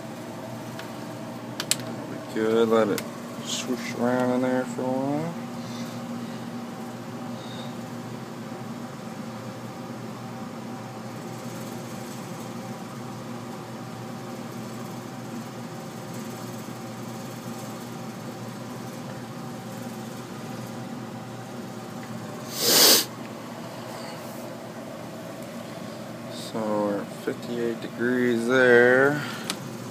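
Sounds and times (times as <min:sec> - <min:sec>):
heat pump humming: 0:00.0 - 0:29.9
loud hissing burst: 0:22.4 - 0:23.1.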